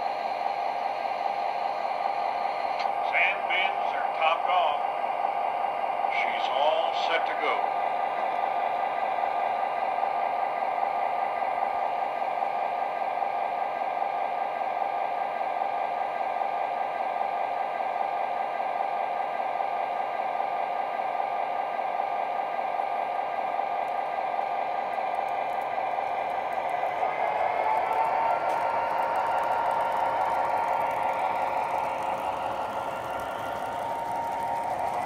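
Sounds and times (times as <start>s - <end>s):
model train wheels on track: 0.0s - 35.0s
diesel engine drone: 6.0s - 9.4s, 22.8s - 35.0s
high whine: 22.8s - 35.0s.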